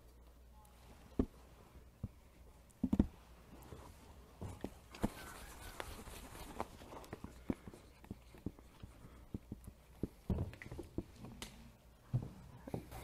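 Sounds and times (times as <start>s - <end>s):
markers tapping on whiteboards: 6.9s - 11.2s.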